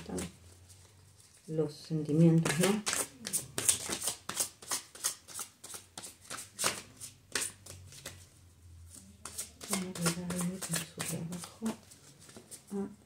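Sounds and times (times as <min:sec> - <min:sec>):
cards being shuffled: 0:02.4 - 0:08.2, 0:08.9 - 0:12.7.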